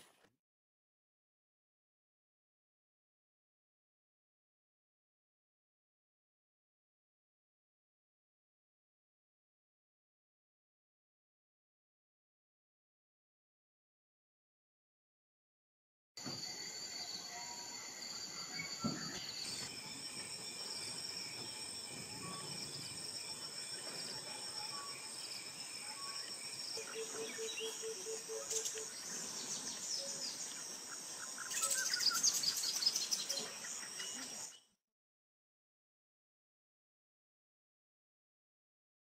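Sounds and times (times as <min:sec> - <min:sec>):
insect trilling: 0:16.5 - 0:34.6
bird calls: 0:18.3 - 0:34.7.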